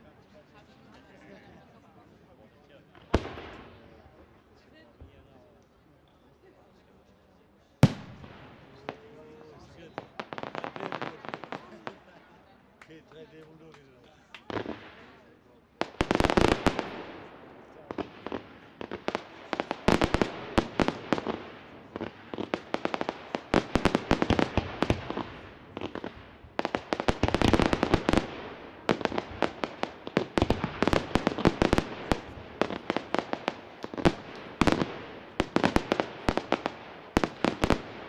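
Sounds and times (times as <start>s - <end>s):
fireworks crackling and popping: 2.9s - 4.2s, 7.8s - 12.2s, 13.4s - 38.0s.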